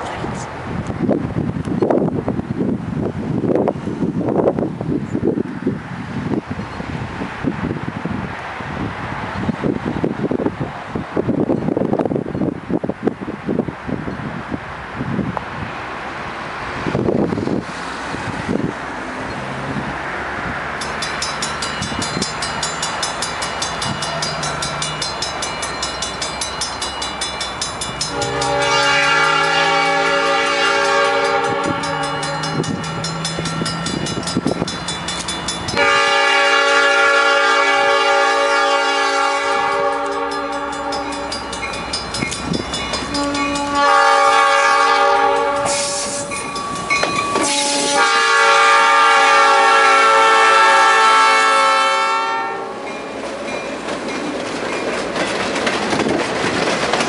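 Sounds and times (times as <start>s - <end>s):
rhythmic train clatter: 20.4s - 37.1s, 38.1s - 48.3s, 52.7s - 57.0s
locomotive air horn blasts: 28.1s - 32.7s, 35.8s - 41.2s, 43.1s - 46.3s, 47.4s - 52.8s.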